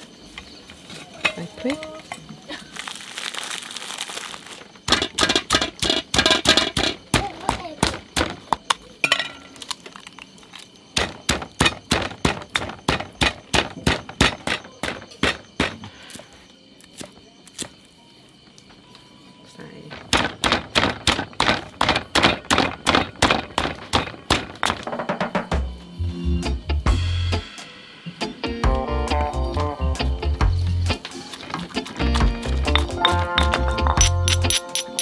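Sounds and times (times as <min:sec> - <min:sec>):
stone pestle pounding in mortar: 0:32.7 - 0:35.0.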